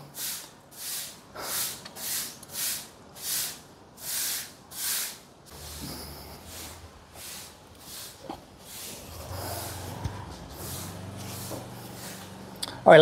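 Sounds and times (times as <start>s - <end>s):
broom sweeping: 0.0s - 12.6s.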